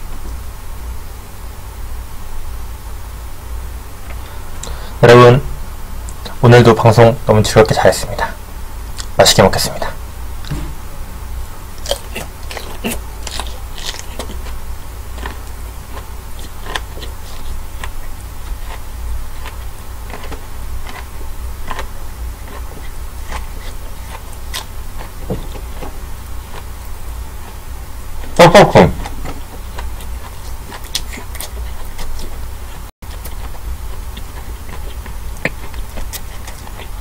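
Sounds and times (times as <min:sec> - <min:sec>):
steady low hum: 0:00.0 - 0:37.0
person chewing prawn: 0:11.8 - 0:28.4, 0:29.0 - 0:37.0.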